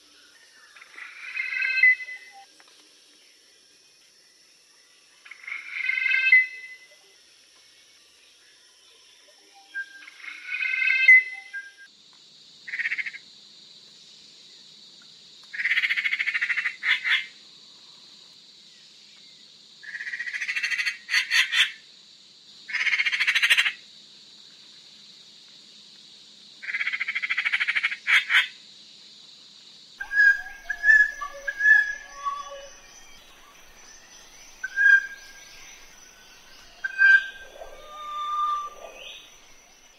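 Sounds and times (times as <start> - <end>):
steady high hiss: 11.4 - 39.9.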